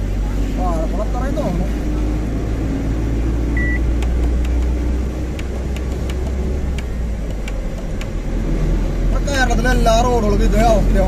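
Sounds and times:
truck diesel engine and road noise: 0.0s - 11.0s
short high beep: 3.6s - 3.8s
faint clicks: 5.4s - 8.2s.

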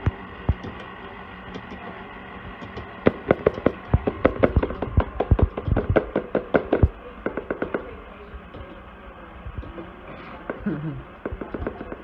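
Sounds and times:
stand mixer humming: 0.0s - 7.2s.

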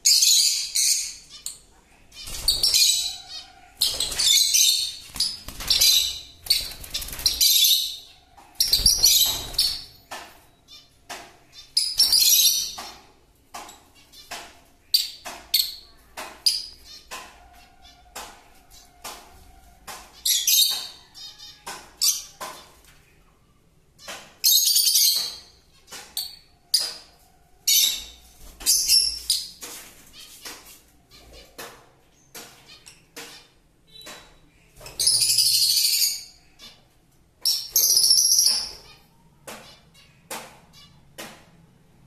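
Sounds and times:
birds screeching: 0.0s - 13.0s
bird chirps and clicks: 30.3s - 36.0s.

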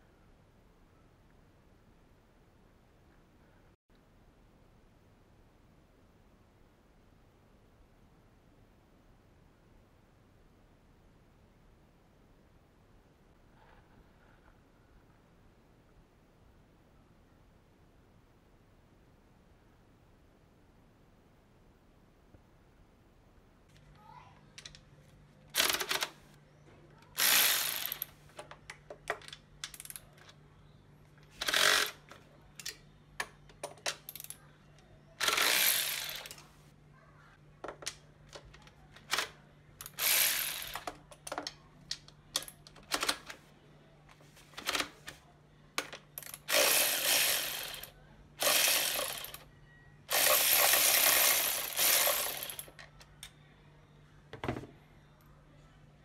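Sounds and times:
ratchet wrench clicking: 27.2s - 28.1s, 31.4s - 32.0s, 35.2s - 36.4s, 39.8s - 40.9s, 46.2s - 49.4s, 50.1s - 52.7s.

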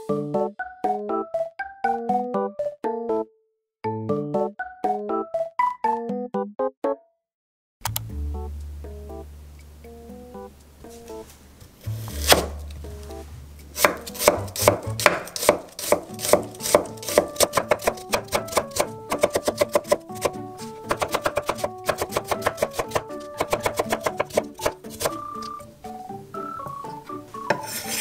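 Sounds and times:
knife slicing onion on wooden board: 11.8s - 12.7s, 13.7s - 25.6s, 27.5s - 28.0s.

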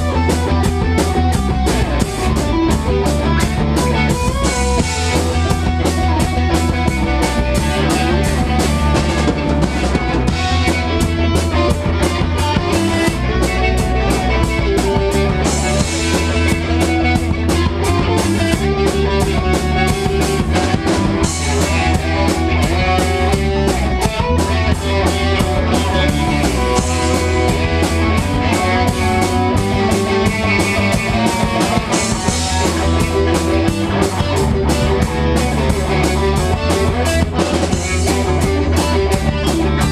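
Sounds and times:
bass guitar: 0.0s - 39.9s
drum kit beat: 0.0s - 39.9s
electric guitar: 0.0s - 39.9s.

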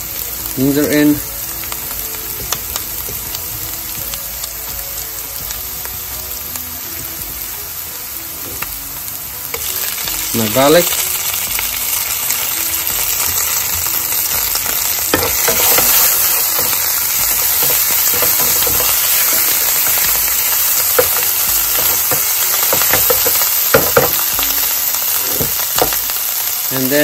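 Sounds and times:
vegetables sizzling in hot oil: 0.0s - 27.0s
spatula knocking against pan: 21.0s - 24.2s.

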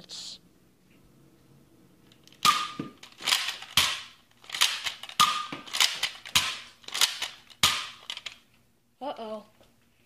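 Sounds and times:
toy blaster plastic clacks: 2.2s - 8.4s.

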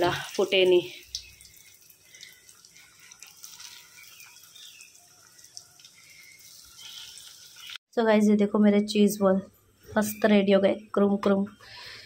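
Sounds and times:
oil sizzling with pops: 0.0s - 7.8s.

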